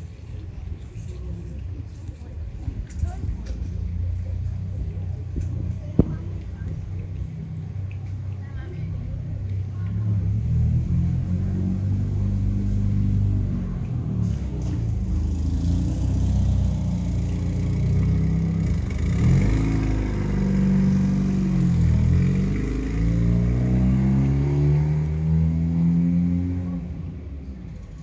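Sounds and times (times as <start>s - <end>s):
vehicle engine revving: 10.0s - 27.3s.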